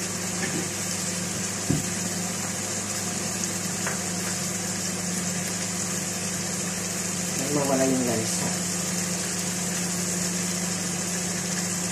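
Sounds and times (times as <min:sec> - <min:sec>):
chicken sizzling in hot oil: 0:00.0 - 0:11.9
dull thump: 0:01.6 - 0:01.9.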